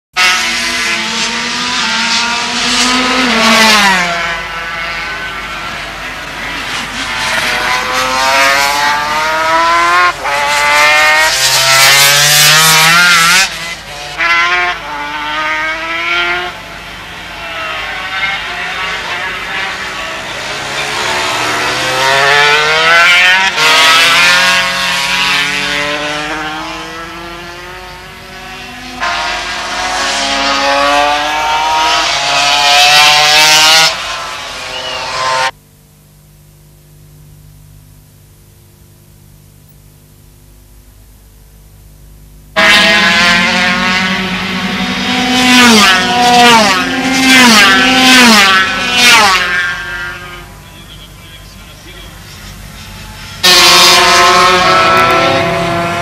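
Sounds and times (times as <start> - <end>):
racing motorcycle engines revving: 0.2 - 35.6, 42.5 - 56.0.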